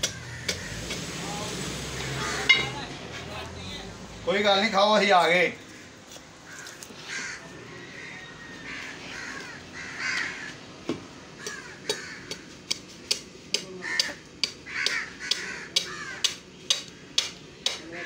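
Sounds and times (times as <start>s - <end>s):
harsh calls: 0.0s - 3.1s.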